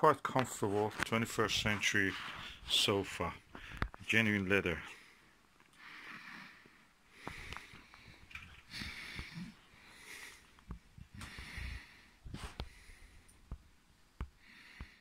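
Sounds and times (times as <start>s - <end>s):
faint breathing through nose: 3.5s - 3.9s, 4.9s - 13.5s, 14.4s - 15.0s.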